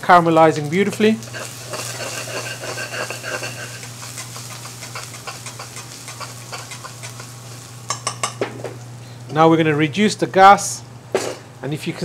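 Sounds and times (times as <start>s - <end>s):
food sizzling in hot oil: 0.0s - 9.3s
steady low hum: 0.0s - 12.0s
metal spoon scraping a pan: 0.8s - 8.4s.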